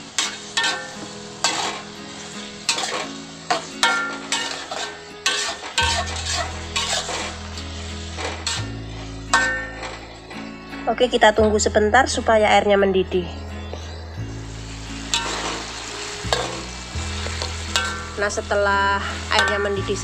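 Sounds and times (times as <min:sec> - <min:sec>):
metal spatula scraping a wok: 0:00.0 - 0:10.2, 0:14.6 - 0:20.0
faint background music: 0:00.0 - 0:20.0.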